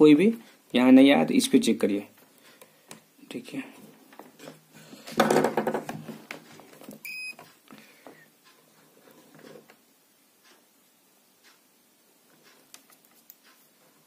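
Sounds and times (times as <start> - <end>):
multimeter beep: 7.0 - 7.4.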